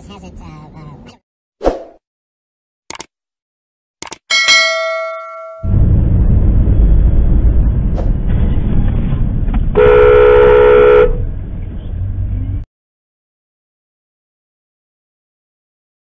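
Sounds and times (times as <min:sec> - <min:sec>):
road and engine noise: 0:00.0 - 0:01.2, 0:05.7 - 0:12.7
car horn: 0:09.8 - 0:11.3.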